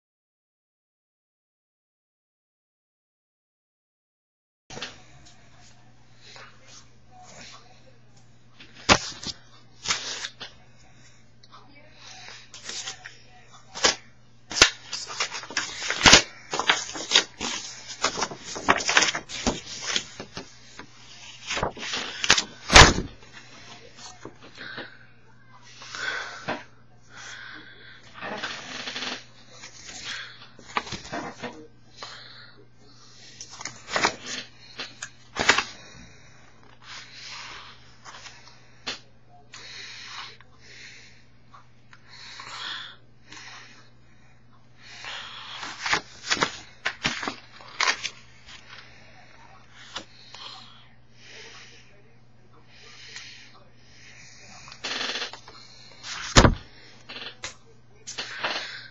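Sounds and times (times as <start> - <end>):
faint low hum: 4.7 - 58.9
paper crinkling: 8.6 - 10.5, 12.6 - 13.1, 13.7 - 24.3, 29.6 - 31.5, 33.4 - 35.8, 45.1 - 48.9
envelope paper tearing: 8.8 - 10.4, 12.6 - 13.0, 13.7 - 23.2, 28.3 - 31.4, 33.5 - 35.8, 45.1 - 48.7, 56.0 - 56.6.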